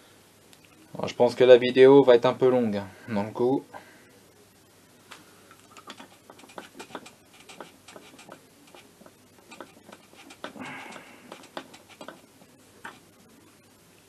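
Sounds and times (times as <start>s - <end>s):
rustling: 5.0s - 13.7s.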